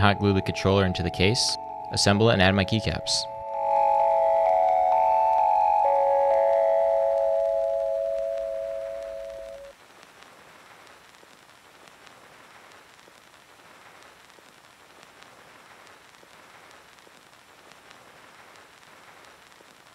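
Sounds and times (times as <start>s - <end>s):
background music: 0.0s - 9.7s
faint steady hiss: 0.0s - 19.9s
tiny ticks: 6.3s - 19.9s.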